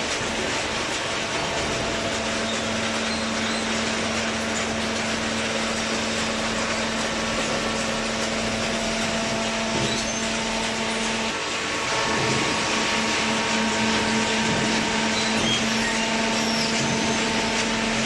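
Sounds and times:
hydraulic baler humming: 0:00.0 - 0:18.0.

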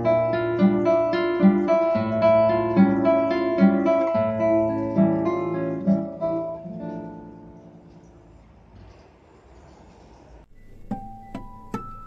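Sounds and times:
acoustic guitar plucked notes: 0:00.0 - 0:07.9, 0:10.5 - 0:12.0.

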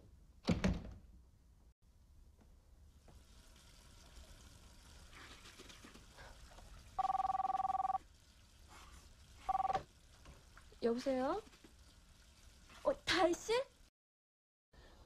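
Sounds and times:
telephone ringing two-tone: 0:07.0 - 0:08.0, 0:09.5 - 0:09.8.

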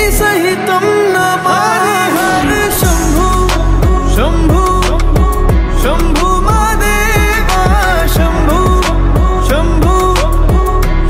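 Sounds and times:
electronic music with deep kick drums: 0:02.7 - 0:11.0.

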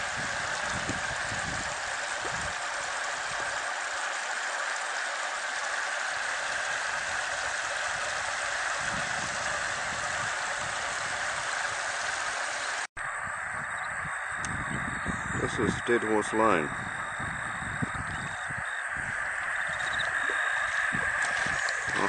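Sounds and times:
floodwater rushing: 0:18.9 - 0:22.0.

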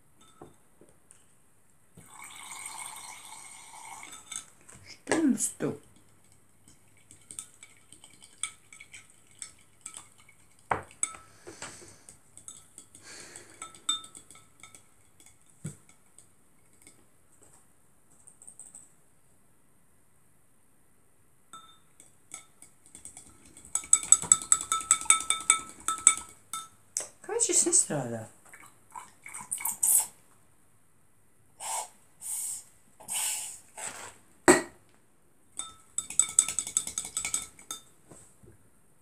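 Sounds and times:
spoon clinking against glass: 0:00.2 - 0:00.6, 0:03.9 - 0:04.5, 0:12.4 - 0:17.0, 0:21.5 - 0:26.8, 0:35.6 - 0:38.0
spoon stirring glue in jar: 0:03.5 - 0:04.5, 0:05.8 - 0:11.3, 0:11.9 - 0:17.0, 0:21.6 - 0:26.8, 0:35.6 - 0:38.0.

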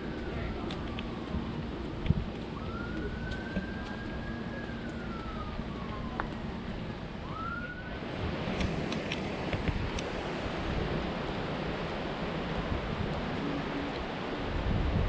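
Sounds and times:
distant siren wailing: 0:00.0 - 0:08.5
wind noise on microphone: 0:00.0 - 0:15.0.

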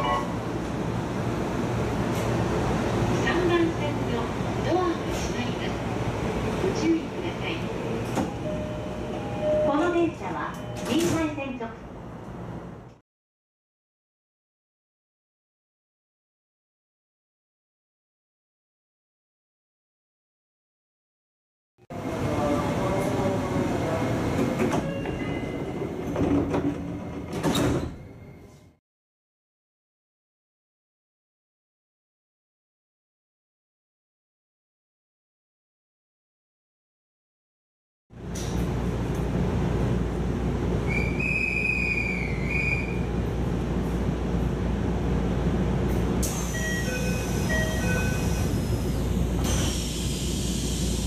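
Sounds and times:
train background noise: 0:00.0 - 0:13.0, 0:21.9 - 0:28.8, 0:38.2 - 0:51.0
sliding train doors: 0:00.6 - 0:03.3, 0:07.8 - 0:09.5, 0:22.9 - 0:28.7, 0:38.2 - 0:39.8, 0:45.4 - 0:51.0
train doors hissing: 0:46.2 - 0:51.0.

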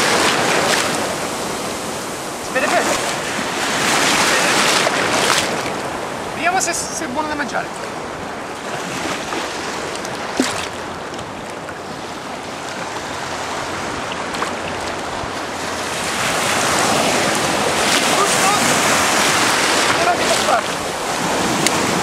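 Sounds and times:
shallow sea surf: 0:00.0 - 0:22.0
wind on microphone: 0:07.7 - 0:22.0.

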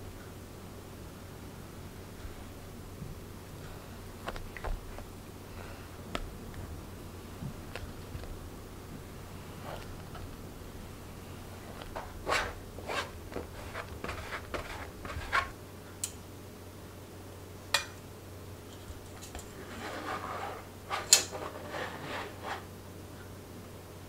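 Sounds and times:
plastic scraper scraping on sieve: 0:11.7 - 0:15.5, 0:19.6 - 0:22.7.

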